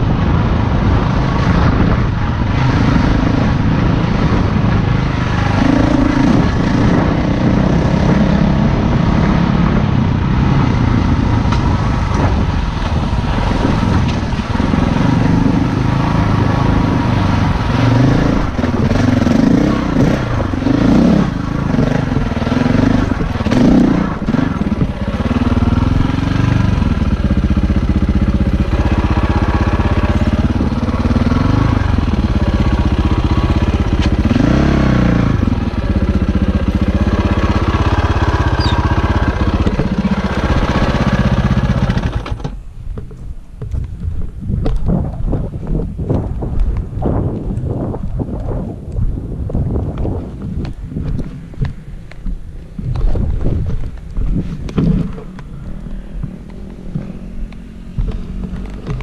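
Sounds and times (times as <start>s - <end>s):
dirt bike engine revving: 0.7s - 42.6s.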